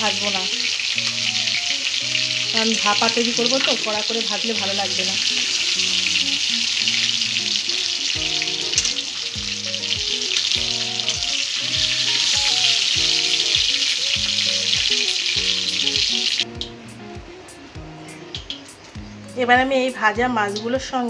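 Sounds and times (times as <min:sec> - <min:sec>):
fish sizzling in hot oil: 0:00.0 - 0:16.7
background music of short notes: 0:00.0 - 0:21.0.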